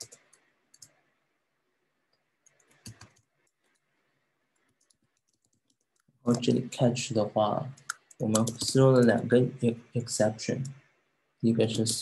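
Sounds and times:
computer keyboard keystrokes: 0.0 - 0.9, 2.4 - 3.8, 7.8 - 8.8.

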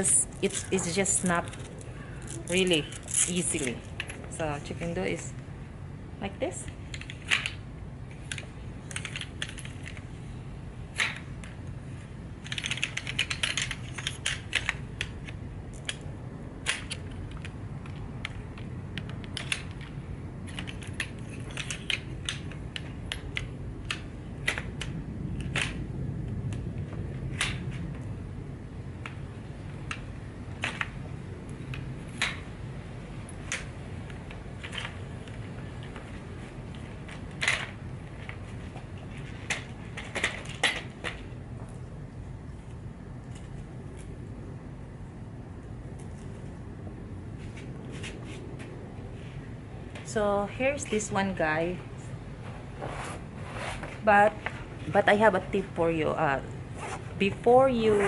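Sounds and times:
steady low hum: 0.0 - 58.0
folding chair poles clicking: 12.4 - 16.0, 16.6 - 25.8, 33.3 - 41.4.

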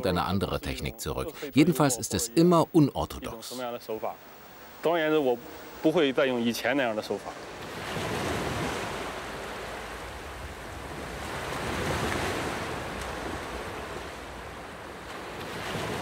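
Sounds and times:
surf waves rushing on beach: 3.3 - 16.0.

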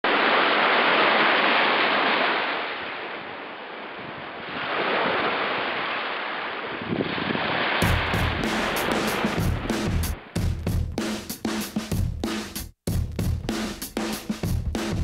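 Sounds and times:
waves washing against rocks: 0.1 - 10.3.

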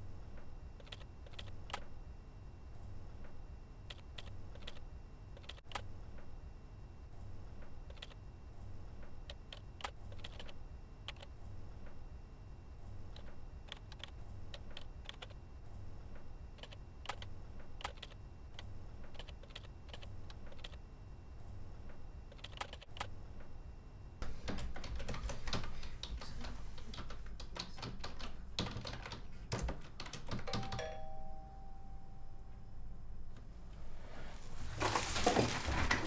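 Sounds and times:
typing on computer keyboard: 0.8 - 1.9, 3.9 - 4.8, 5.4 - 5.8, 7.9 - 8.2, 9.3 - 11.3, 13.1 - 15.4, 16.6 - 20.8, 22.3 - 23.1, 24.3 - 30.9.

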